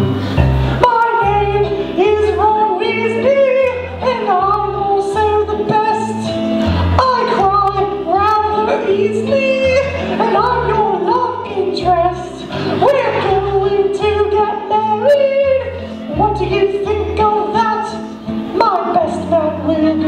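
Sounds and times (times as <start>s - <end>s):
instrumental accompaniment with bass: 0.0s - 20.0s
woman singing: 0.8s - 20.0s.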